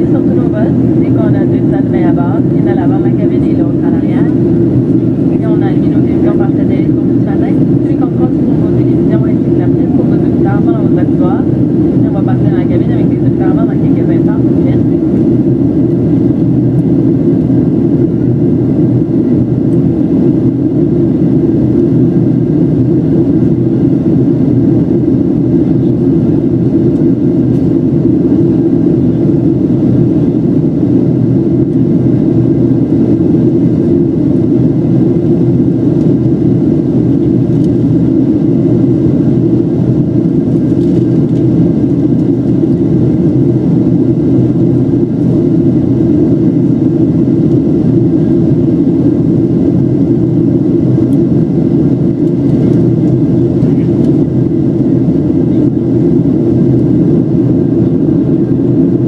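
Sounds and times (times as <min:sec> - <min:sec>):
faint steady whine: 0:00.0 - 0:59.0
jet engine cabin roar: 0:00.0 - 0:59.0.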